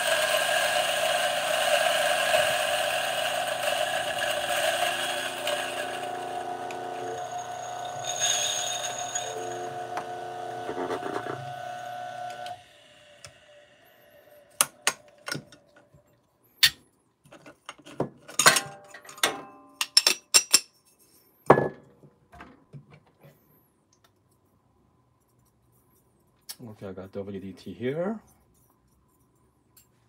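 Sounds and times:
coffee grinder humming: 0.0 - 15.7.

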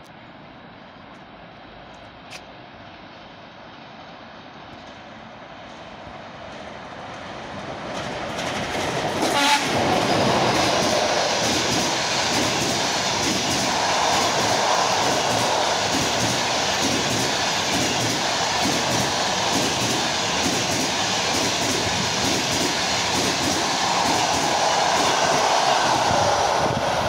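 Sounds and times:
electric locomotive approaching: 0.2 - 27.0
train wheel noise: 4.6 - 27.0
locomotive air horn blast: 9.2 - 9.8.

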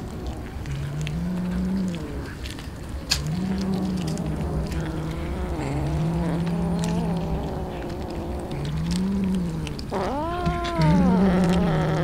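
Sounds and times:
cat growling: 0.0 - 12.0
cat meowing: 3.4 - 12.0.

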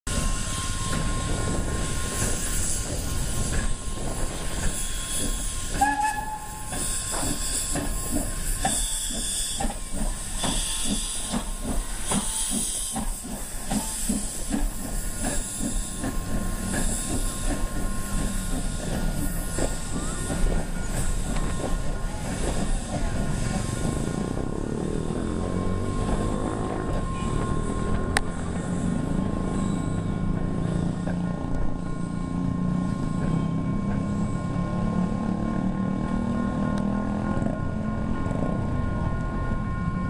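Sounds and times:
steam hissing: 0.1 - 29.5
train cars rolling past: 0.1 - 40.0.

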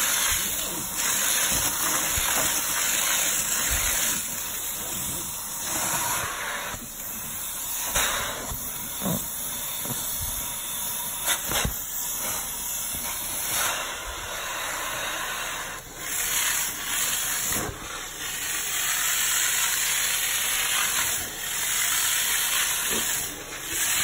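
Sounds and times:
hiss of spray and suction: 0.0 - 24.0.

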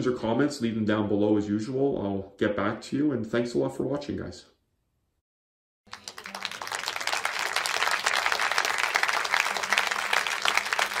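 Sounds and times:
crowd applause: 5.9 - 11.0.

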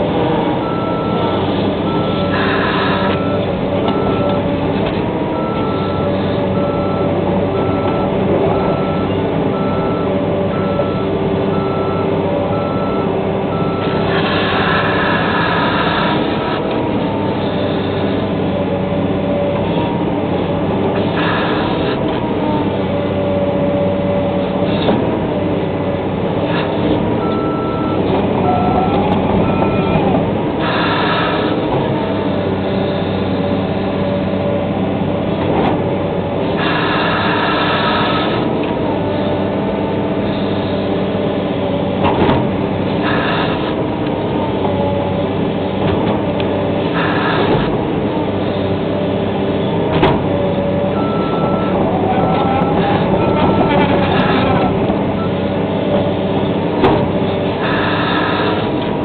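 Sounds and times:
excavator diesel engine running: 0.0 - 59.0
back-up alarm beeping: 27.2 - 30.1, 50.9 - 55.4.

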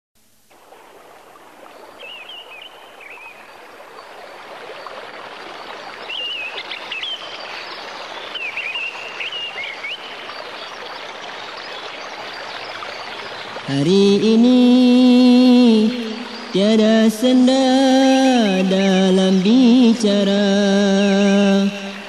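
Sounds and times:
running water: 0.3 - 22.0
birds chirping and warbling: 1.6 - 13.7.

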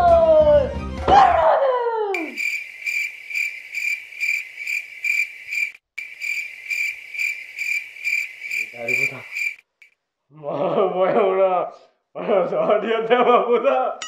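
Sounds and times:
cricket chirping: 2.2 - 10.0.

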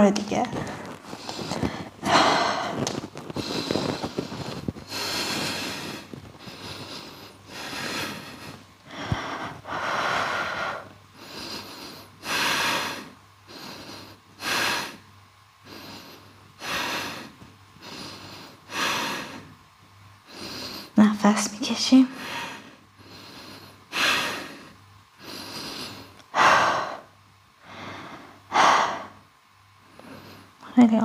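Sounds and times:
person breathing audibly: 0.5 - 15.0, 22.1 - 30.6.

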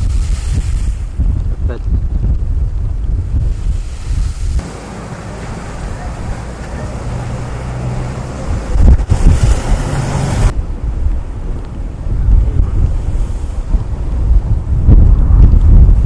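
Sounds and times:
strong wind blowing: 0.0 - 16.0
wind buffeting microphone: 0.0 - 16.0.

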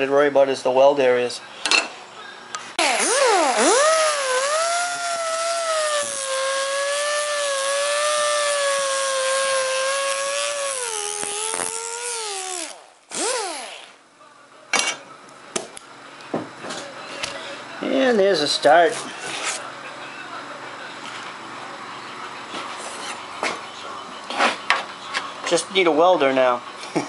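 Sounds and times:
rotary grinder grinding metal: 2.8 - 14.0.

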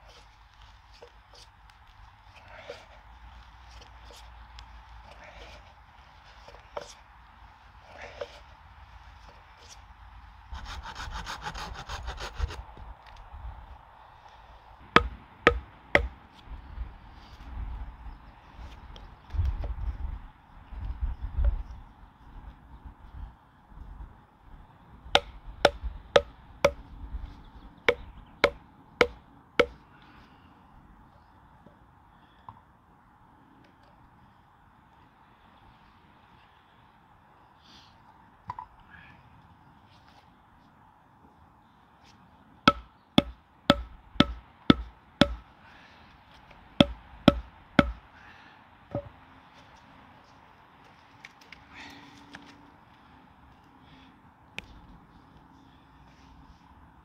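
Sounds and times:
wooden mallet knocking pegs: 14.9 - 16.1, 25.2 - 26.8, 27.9 - 29.8, 42.7 - 45.4, 46.8 - 48.0.

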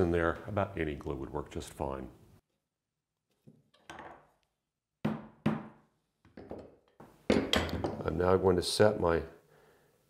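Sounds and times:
wooden knocks on a workbench: 5.0 - 8.0.

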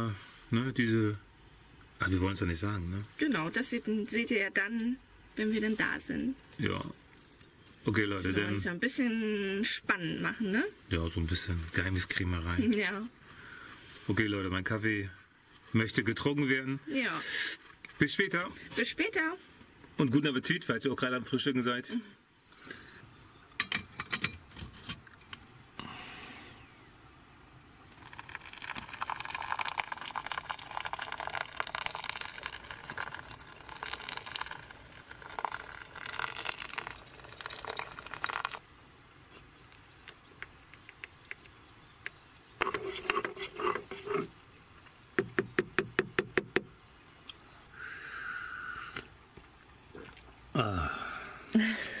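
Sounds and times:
hot water pouring into filter: 27.9 - 38.6.

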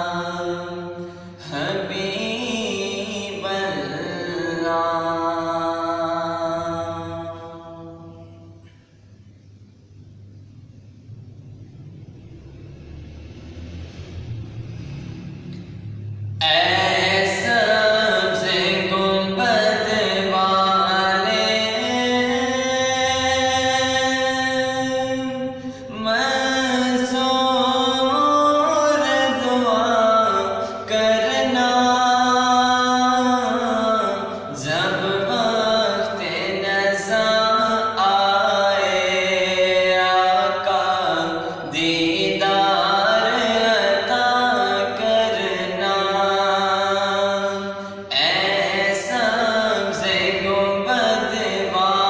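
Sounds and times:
man singing unaccompanied: 0.0 - 8.6, 16.4 - 52.0.

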